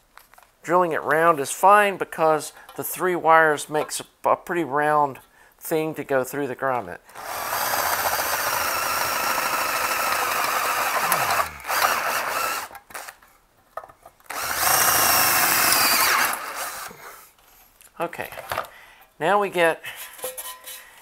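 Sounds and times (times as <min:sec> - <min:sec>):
electric drill boring metal: 0:07.2 - 0:13.1, 0:14.3 - 0:17.0.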